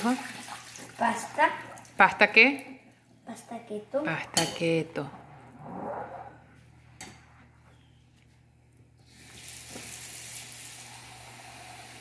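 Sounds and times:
faucet water running: 0.0 - 2.0, 9.0 - 12.0.

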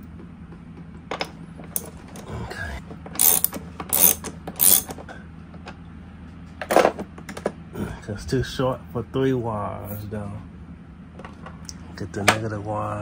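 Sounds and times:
ratchet wrench clicking: 3.2 - 5.0.

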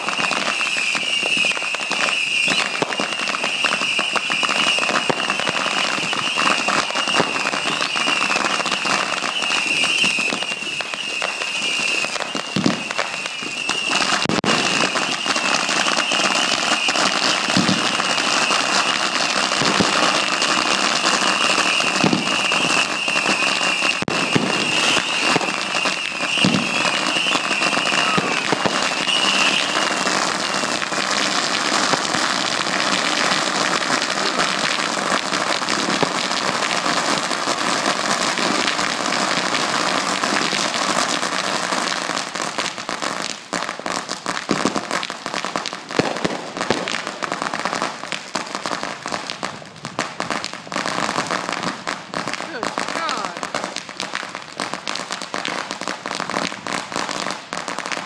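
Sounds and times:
firework whistle: 0.0 - 43.8
fireworks crackling and popping: 0.0 - 58.0.

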